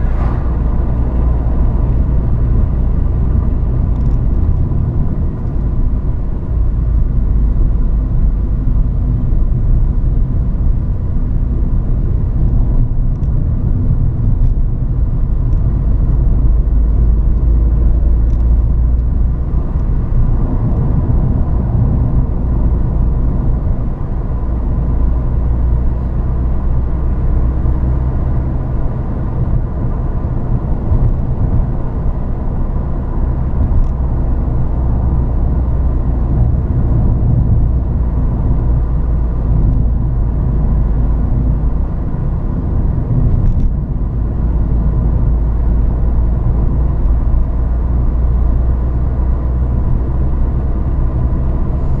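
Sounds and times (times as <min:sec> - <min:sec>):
car engine running: 0:00.0 - 0:52.0.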